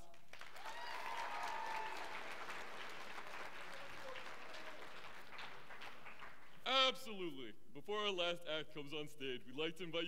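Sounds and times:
audience applauding: 0.3s - 6.6s
audience cheering: 0.6s - 5.1s.

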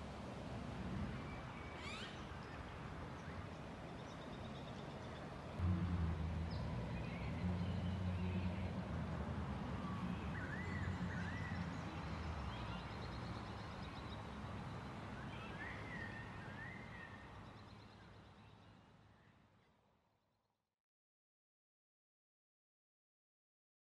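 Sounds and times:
steady low hum: 5.6s - 13.4s.

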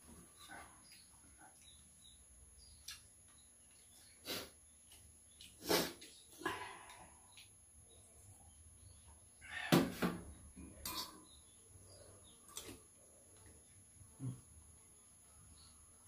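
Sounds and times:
people sniffing: 4.2s - 4.6s, 5.6s - 6.6s.

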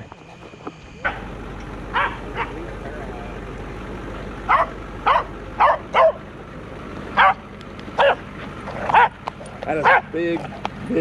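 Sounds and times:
dog barking: 1.9s - 2.6s, 4.5s - 6.2s, 7.2s - 7.4s, 8.0s - 8.3s, 8.9s - 9.2s, 9.8s - 10.2s.

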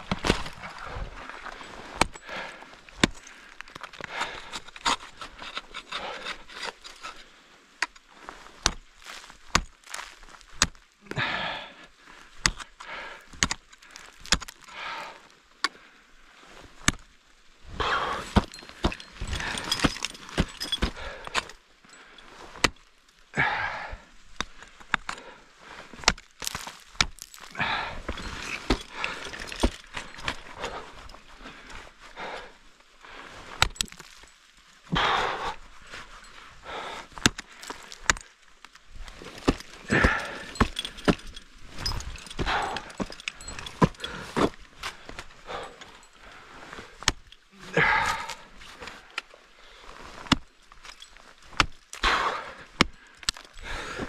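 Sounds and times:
ice axes knocking into ice: 1.9s - 2.3s, 2.9s - 7.0s, 8.6s - 10.8s, 13.3s - 14.7s, 18.0s - 21.6s, 25.9s - 30.8s, 39.2s - 44.6s, 50.2s - 53.6s
scraping and rasping on ice: 3.8s - 7.3s.

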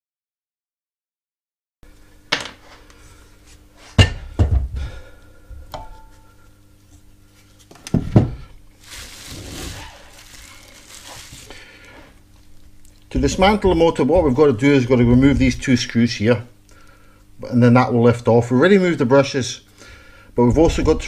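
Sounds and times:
bubble wrap rustling: 8.7s - 15.7s.

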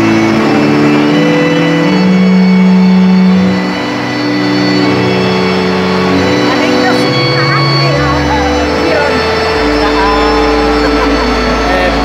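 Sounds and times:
keyboard playing held chords: 0.0s - 12.0s
large crowd noise: 0.0s - 12.0s.

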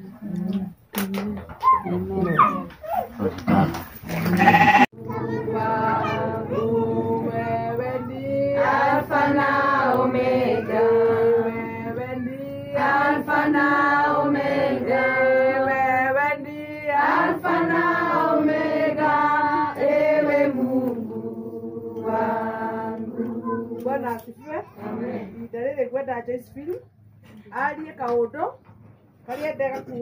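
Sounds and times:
voices singing together: 4.4s - 25.6s.

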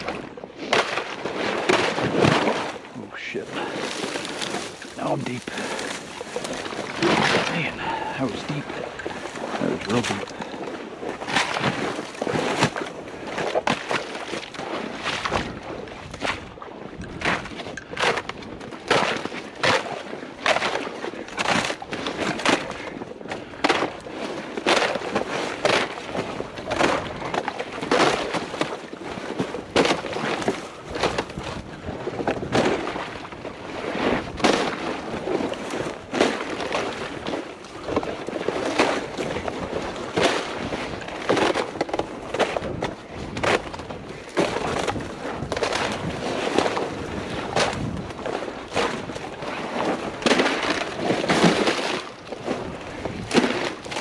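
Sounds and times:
footsteps through vegetation: 3.4s - 7.6s.

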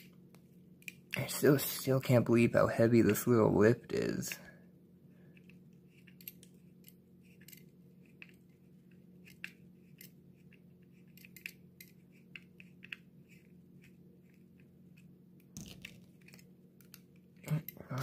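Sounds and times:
steady low hum: 0.0s - 18.0s
screwdriver clicks and creaks: 9.2s - 13.0s.

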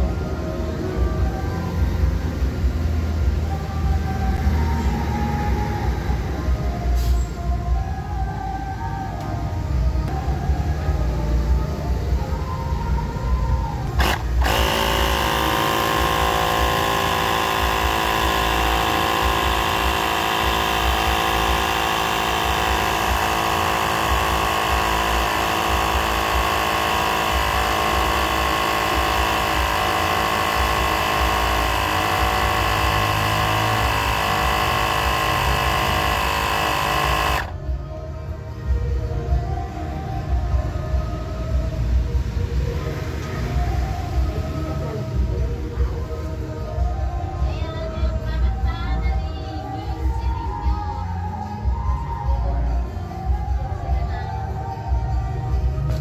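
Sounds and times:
air compressor motor whine: 0.0s - 37.9s.

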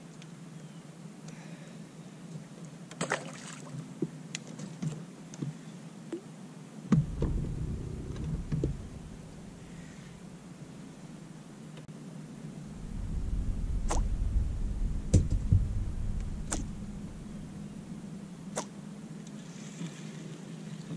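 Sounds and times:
heavy thump: 6.9s - 9.8s, 12.7s - 18.3s
low rumble: 6.9s - 11.0s, 12.6s - 18.6s
steady low hum: 6.9s - 11.5s, 12.3s - 19.3s.

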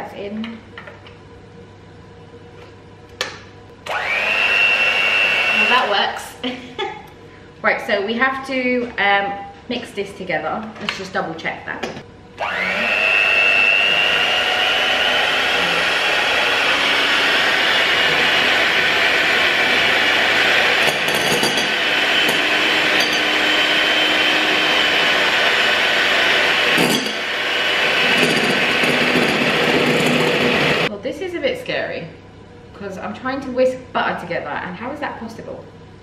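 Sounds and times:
electric hand mixer whine: 3.8s - 6.2s, 12.4s - 30.9s.

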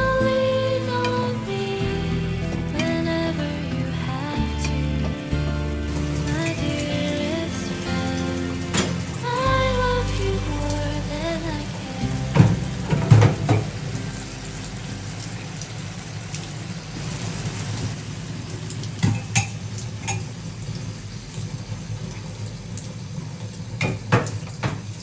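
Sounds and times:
sauce bubbling and sizzling in pan: 12.5s - 25.0s.

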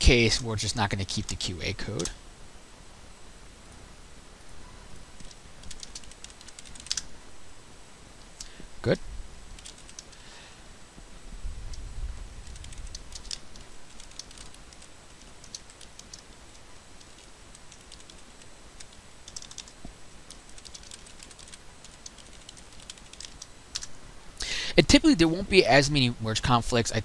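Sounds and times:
computer keyboard key clicks: 5.2s - 7.1s.

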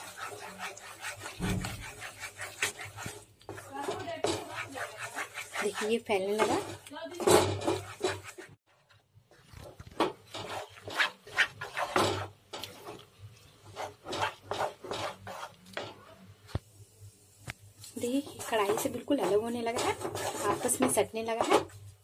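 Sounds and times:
wooden spatula scraping a pan: 0.0s - 16.1s, 17.9s - 22.0s.

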